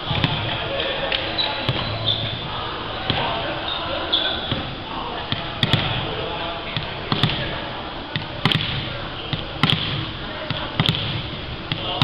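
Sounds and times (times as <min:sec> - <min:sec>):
volleyball bouncing on wooden floor: 0:00.1 - 0:00.5, 0:01.6 - 0:02.4, 0:05.3 - 0:06.0, 0:06.7 - 0:12.0.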